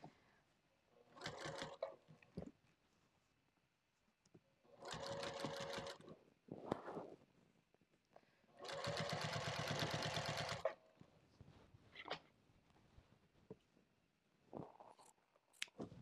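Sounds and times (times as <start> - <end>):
sewing machine stitching: 1.2 - 2.0, 4.8 - 6.0, 8.6 - 10.8.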